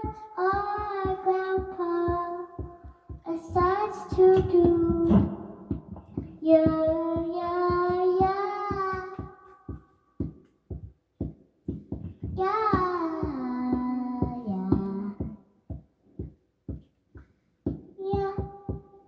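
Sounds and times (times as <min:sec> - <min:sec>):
child singing: 0:00.0 - 0:09.8, 0:12.2 - 0:15.4, 0:18.0 - 0:19.0
percussive knocking beat: 0:00.0 - 0:19.0.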